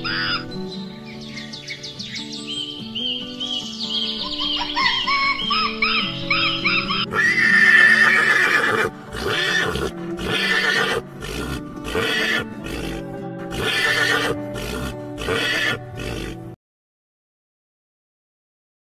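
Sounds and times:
horse whinnying: 0.0 - 0.4, 5.2 - 16.6
background music: 0.0 - 16.6.

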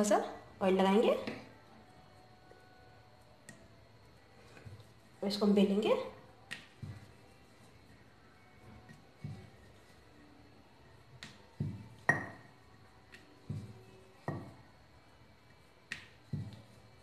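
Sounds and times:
rolling pin knocking on stone board: 11.2 - 12.5, 13.1 - 14.6.

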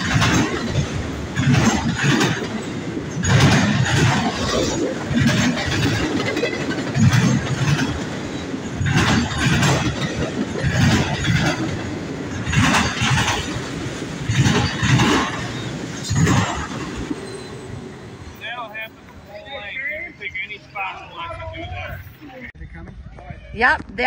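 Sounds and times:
train wheels clattering: 0.0 - 19.2
train rumble: 0.0 - 24.0.

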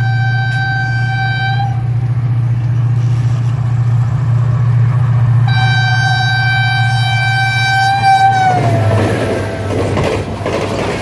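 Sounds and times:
locomotive horn: 0.0 - 2.1, 5.4 - 10.0
diesel locomotive engine rumble: 0.0 - 11.0.

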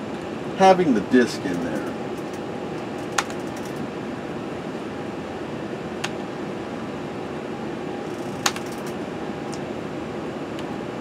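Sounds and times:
computer fans whirring: 0.0 - 11.0
keyboard key click: 8.4 - 8.9.

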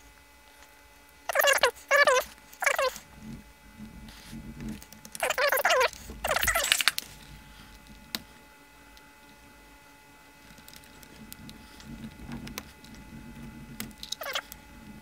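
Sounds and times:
parts rubbing: 4.1 - 7.8, 13.9 - 14.6.

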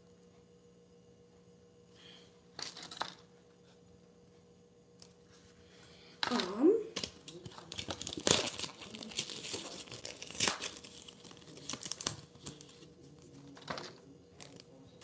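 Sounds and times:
packaging crinkling and crumpling: 2.6 - 3.2, 7.0 - 15.0.

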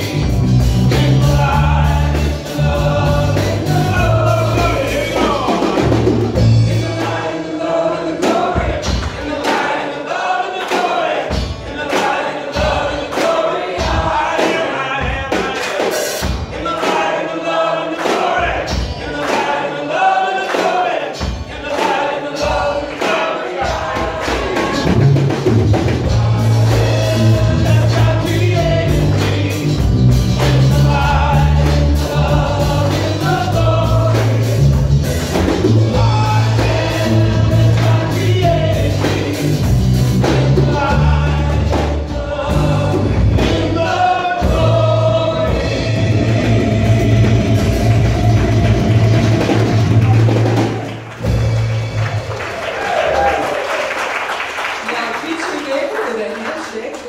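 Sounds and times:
deep bass line: 0.0 - 7.0, 24.8 - 52.3
people singing worship song: 0.0 - 54.5
drums: 0.0 - 55.8.

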